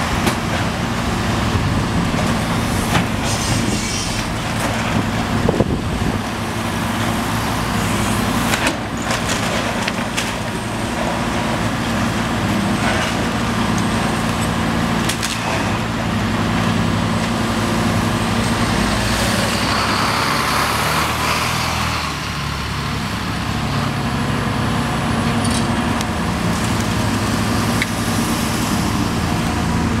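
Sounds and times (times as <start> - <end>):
box truck passing: 0.0 - 10.2
excavator diesel engine running: 0.0 - 30.0
road traffic passing: 0.0 - 30.0.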